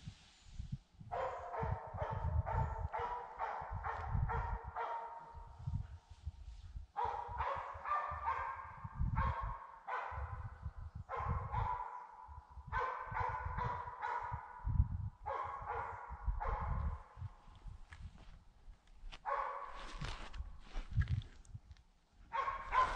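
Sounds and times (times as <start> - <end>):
distant dogs barking and baying: 1.1 - 6.1, 6.8 - 18.3, 19.1 - 21.0, 22.2 - 22.9
low microphone rumble: 14.5 - 18.4.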